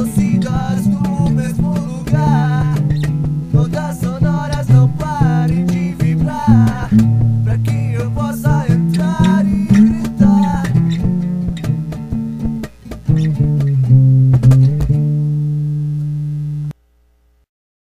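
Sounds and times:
blues-rock guitar and bass: 0.0s - 16.7s.

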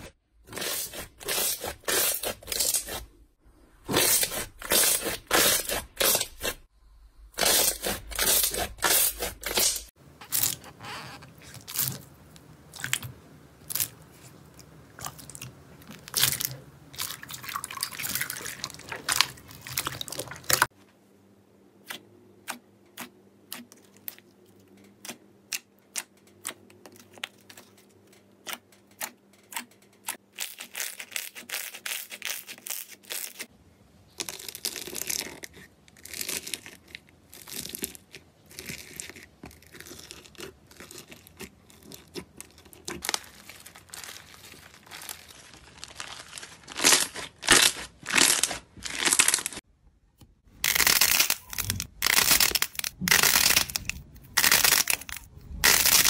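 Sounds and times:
slime squishing: 7.4s - 20.7s, 34.2s - 49.6s
foam slime crunching: 34.2s - 49.6s, 50.6s - 56.0s.

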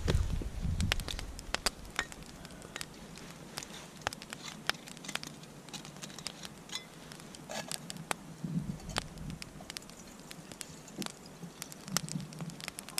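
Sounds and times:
wood fire crackling and popping: 0.0s - 12.9s.

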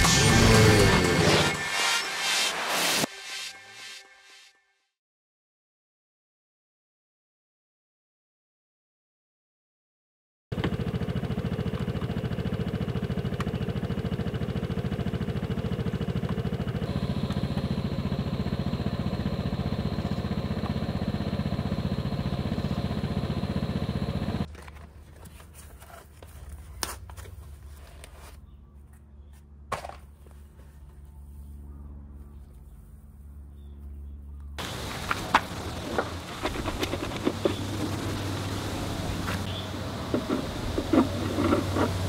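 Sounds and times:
scooter engine idling: 10.6s - 24.5s, 34.6s - 42.0s
handling noise: 34.6s - 42.0s.

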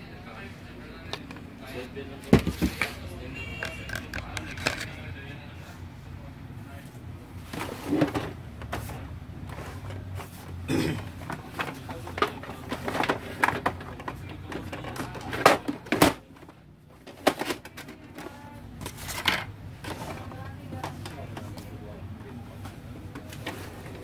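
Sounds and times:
plastic clicks and knocks: 3.6s - 5.0s.

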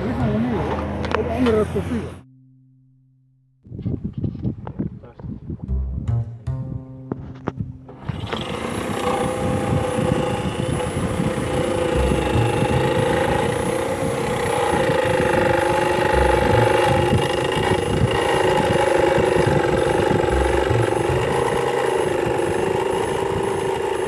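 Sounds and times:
jigsaw cutting metal: 8.0s - 24.0s.

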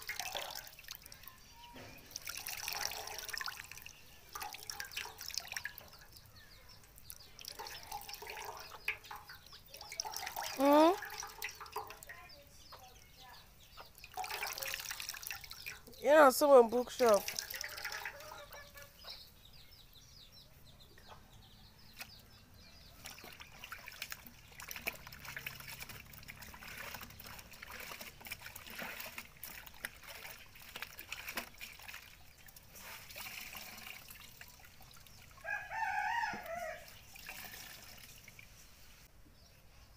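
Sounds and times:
liquid trickling and dripping: 0.0s - 19.2s, 22.0s - 39.1s
rooster crowing: 17.4s - 18.9s, 35.4s - 36.9s.

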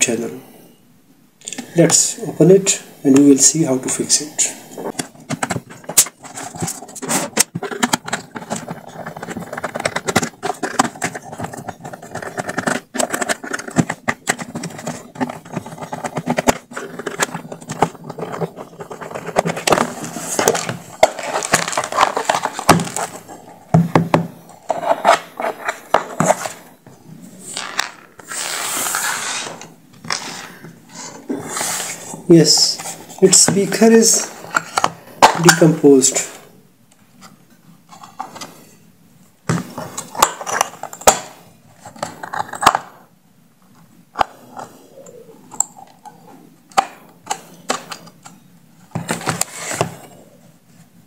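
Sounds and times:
plastic case scraping open: 3.9s - 36.4s, 48.8s - 50.2s
plastic clicks and rattles: 4.9s - 23.2s.

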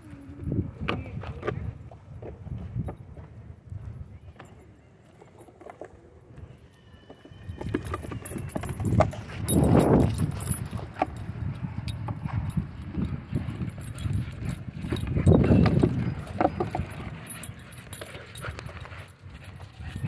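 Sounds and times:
collar jingling: 7.3s - 20.0s
dog panting: 9.2s - 19.7s.

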